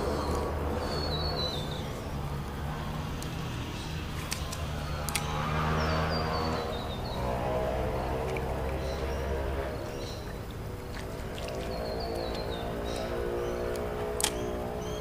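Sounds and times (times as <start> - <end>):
bird calling: 0.0 - 2.9, 3.6 - 15.0
trolling motor humming: 0.0 - 15.0
sharp clicks: 4.1 - 5.4, 13.7 - 14.5.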